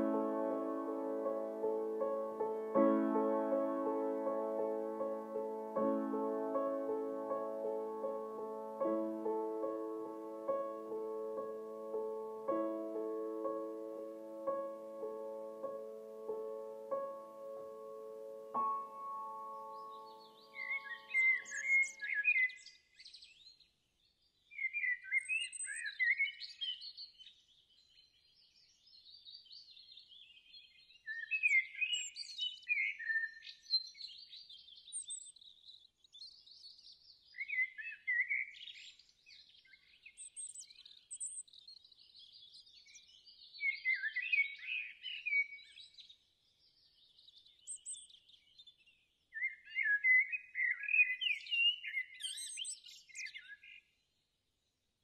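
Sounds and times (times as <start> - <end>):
birds chirping softly: 0.0 - 54.3
birds warbling song: 18.6 - 23.5, 31.1 - 53.9.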